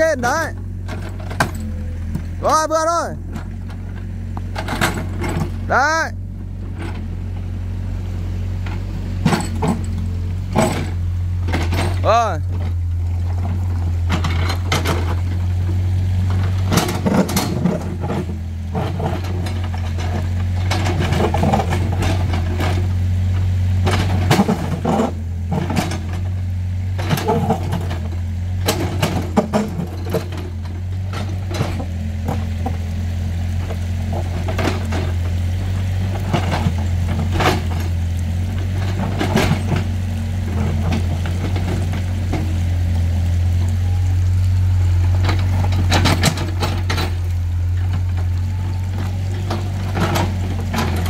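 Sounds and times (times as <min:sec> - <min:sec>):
diesel engine running: 0:00.0 - 0:51.0
bucket knocking and scraping rock: 0:16.3 - 0:23.0, 0:23.9 - 0:26.4, 0:27.0 - 0:43.2.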